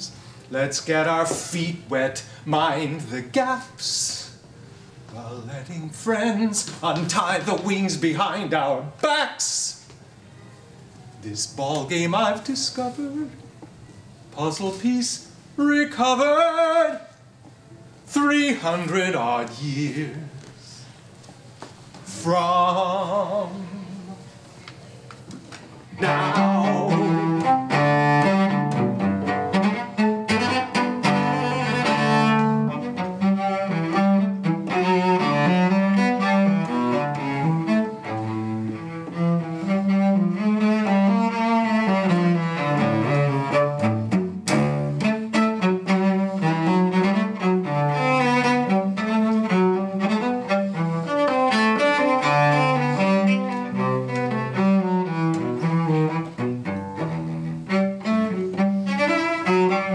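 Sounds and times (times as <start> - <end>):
bowed cello: 22.0 - 24.3, 25.9 - 59.9.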